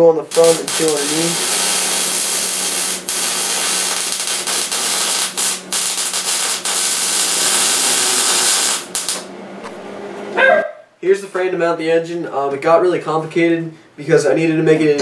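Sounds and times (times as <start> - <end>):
welding arc crackling hiss: 0.0 - 9.3.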